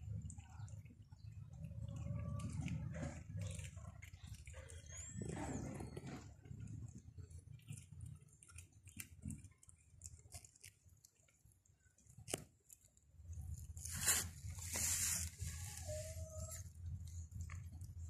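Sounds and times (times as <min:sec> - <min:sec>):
light crackles and clicks: 0:05.9 - 0:15.2
fur rustling against microphone: 0:13.8 - 0:16.6.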